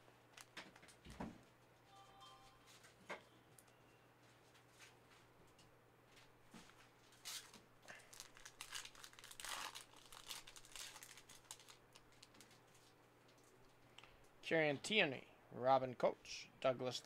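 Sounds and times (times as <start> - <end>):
foil wrapper crinkling and tearing: 7.3 - 12.9.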